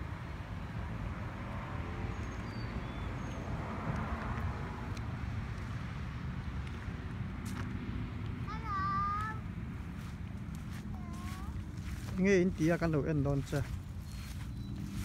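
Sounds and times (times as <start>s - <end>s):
low outdoor rumble: 3.5s - 15.0s.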